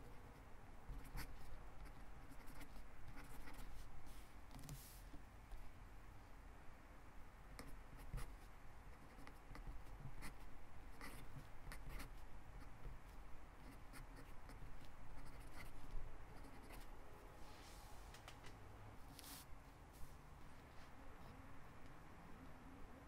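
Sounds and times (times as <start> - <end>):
pen scratching on paper: 0.9 - 3.9, 7.6 - 13.0, 13.6 - 16.9.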